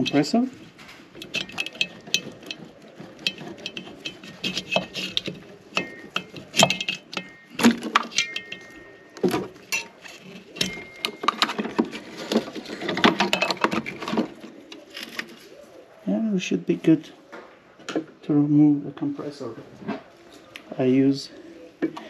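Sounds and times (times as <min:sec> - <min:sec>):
small clicks knocks and rattles: 0:01.0 - 0:15.4.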